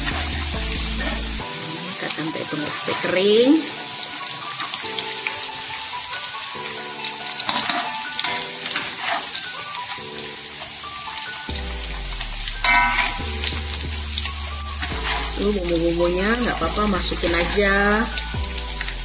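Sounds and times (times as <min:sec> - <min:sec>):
metal spatula scraping a wok: 0:00.0 - 0:01.5, 0:02.6 - 0:04.0, 0:07.4 - 0:10.8, 0:12.6 - 0:13.5, 0:14.6 - 0:15.7, 0:16.4 - 0:17.8
meat sizzling in hot oil: 0:00.0 - 0:19.0.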